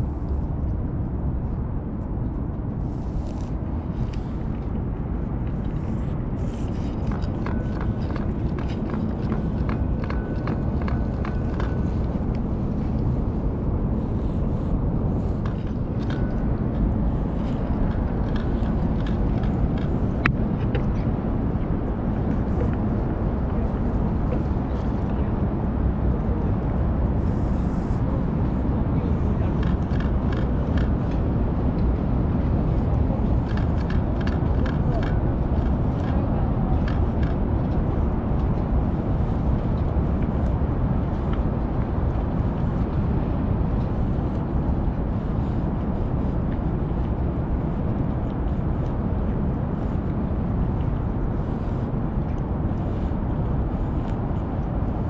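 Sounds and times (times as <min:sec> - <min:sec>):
low outdoor rumble: 0:00.0 - 0:55.0
cat eating from steel dish: 0:02.0 - 0:55.0.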